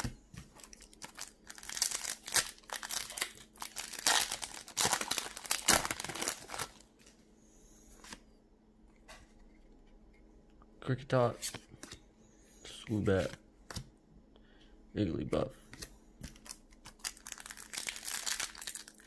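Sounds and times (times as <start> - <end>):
foil wrapper crinkling and tearing: 0.5 - 6.8, 16.3 - 19.0.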